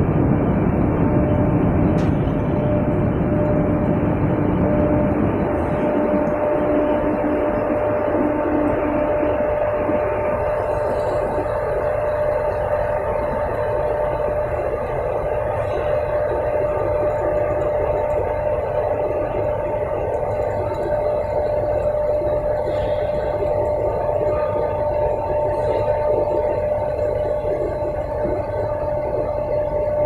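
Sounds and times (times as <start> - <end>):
belt conveyor rumbling: 0.0 - 30.0.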